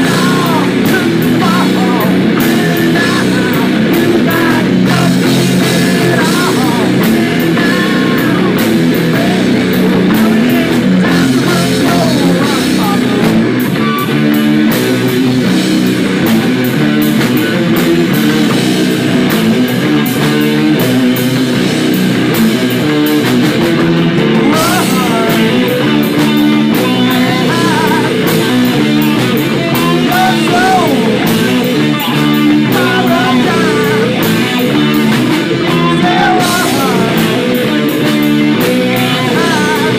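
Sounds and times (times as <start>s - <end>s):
person singing: 0.0s - 14.2s, 24.3s - 39.9s
drum kit: 0.0s - 39.9s
electric guitars: 0.0s - 39.9s.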